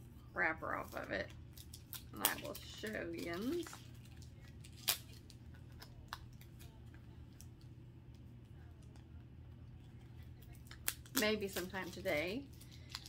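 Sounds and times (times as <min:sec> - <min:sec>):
steady low hum: 0:00.0 - 0:13.0
wrapper being peeled off: 0:00.8 - 0:06.0.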